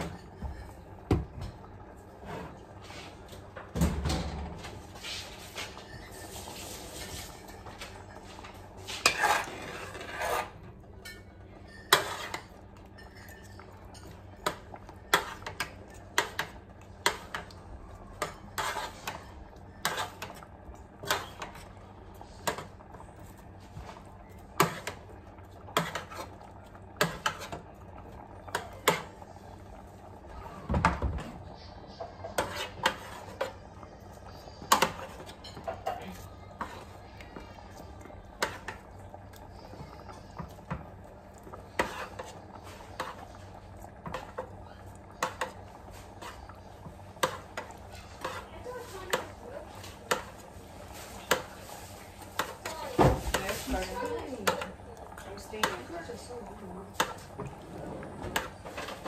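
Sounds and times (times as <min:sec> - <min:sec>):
utensil clinking on metal pan: 0:11.0 - 0:14.6.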